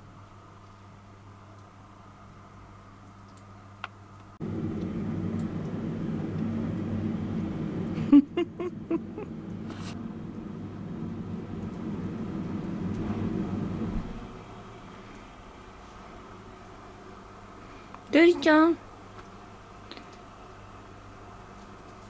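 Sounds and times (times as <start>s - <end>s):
steady low rumble: 4.4s - 15.6s.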